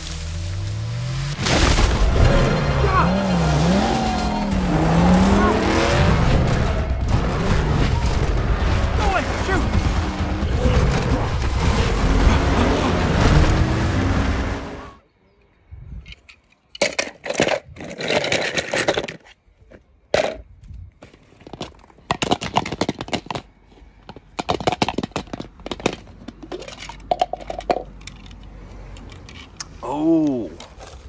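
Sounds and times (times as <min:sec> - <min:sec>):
small hard objects clattering: 0:20.1 - 0:28.4.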